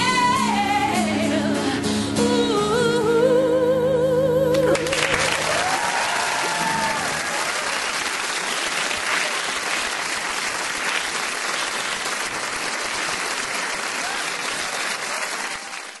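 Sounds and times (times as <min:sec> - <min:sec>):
studio audience applauding: 0:04.6 - 0:16.0.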